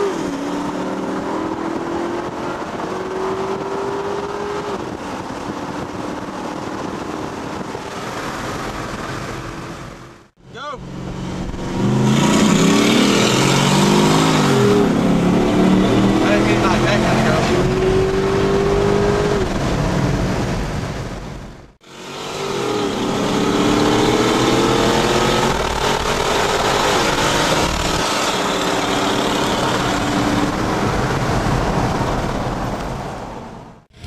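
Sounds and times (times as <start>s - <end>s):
engine accelerating through gears: 21.9s - 31.8s.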